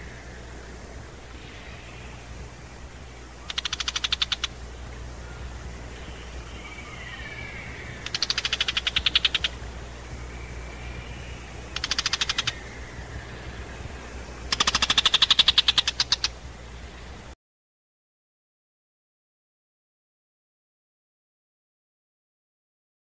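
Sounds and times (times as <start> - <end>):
bird chattering alarm calls: 3.1 - 16.7.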